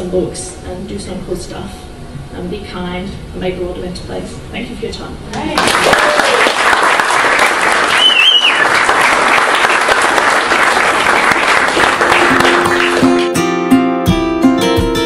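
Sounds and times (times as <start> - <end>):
audience applauding: 5.5 - 13.4
high whistle: 7.9 - 8.8.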